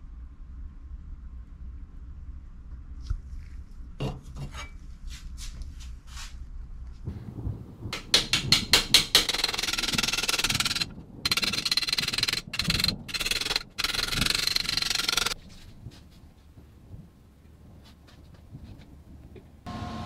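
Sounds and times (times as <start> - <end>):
hammer striking metal punch: 8.0 - 9.4.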